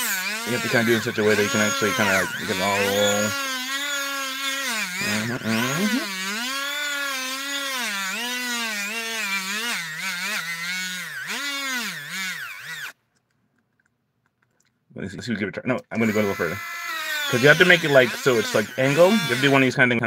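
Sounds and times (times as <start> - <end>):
rotary tool grinding whine: 0.0 - 13.0, 16.0 - 20.0.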